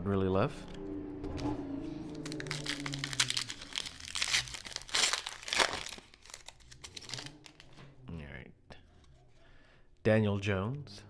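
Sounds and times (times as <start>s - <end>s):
foil wrapper crinkling and tearing: 2.2s - 7.8s.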